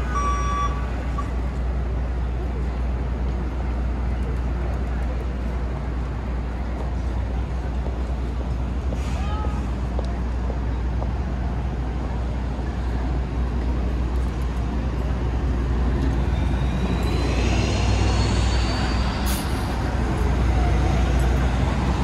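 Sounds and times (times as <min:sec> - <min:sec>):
traffic engines rumbling: 0:00.0 - 0:22.0
rising squeal with hiss: 0:16.2 - 0:20.2.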